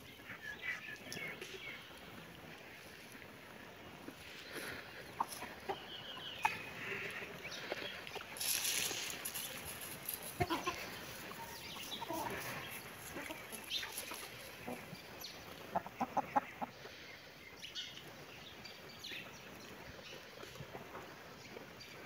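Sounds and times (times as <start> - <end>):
hens clucking: 0.0 - 18.2.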